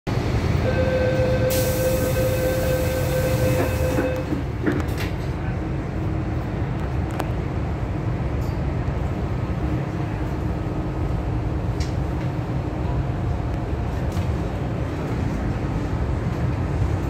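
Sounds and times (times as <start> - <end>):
train wheels rumbling: 0.1 - 17.0.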